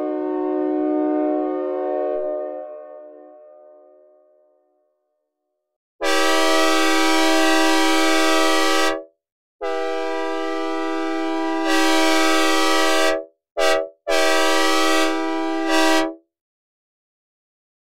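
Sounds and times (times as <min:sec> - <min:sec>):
locomotive air horn chord: 0:00.0 - 0:04.1, 0:06.0 - 0:16.2.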